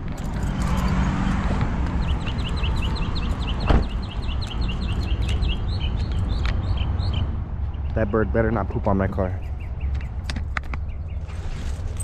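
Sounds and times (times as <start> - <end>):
small bird chirping: 2.0 - 7.3
thump: 3.6 - 4.0.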